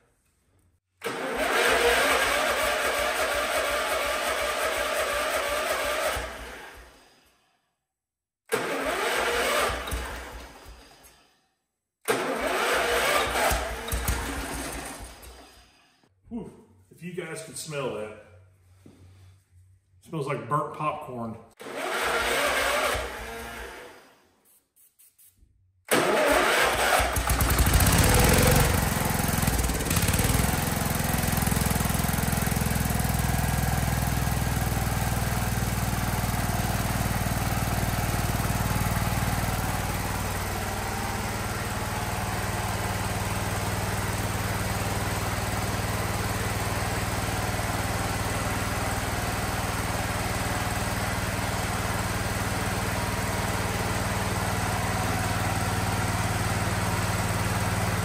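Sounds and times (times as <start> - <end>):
garden tractor engine running: 1.0 - 6.5, 8.6 - 10.4, 12.2 - 15.5, 25.9 - 58.0.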